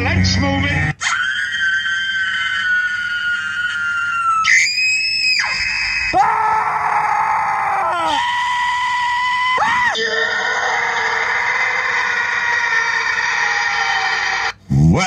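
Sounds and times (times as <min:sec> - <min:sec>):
person screaming: 0:06.2 - 0:15.0.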